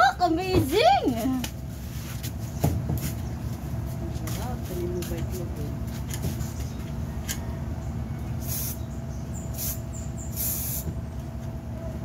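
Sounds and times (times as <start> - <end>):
spray can hissing: 8.4 - 8.8, 9.6 - 10.9.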